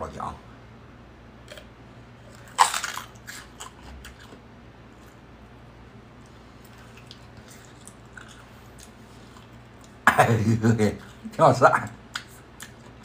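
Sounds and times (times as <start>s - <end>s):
chewing crunches: 1.4s - 5.2s, 6.2s - 10.0s, 11.8s - 13.0s.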